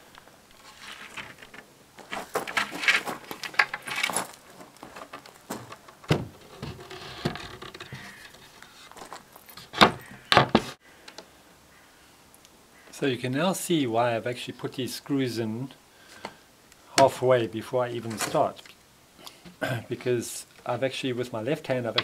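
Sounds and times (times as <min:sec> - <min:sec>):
chipboard panels scraping: 0:00.6 - 0:10.8.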